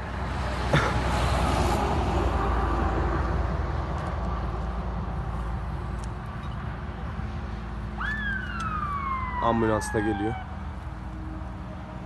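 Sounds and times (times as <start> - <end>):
vehicle passing by: 0.0 - 6.0.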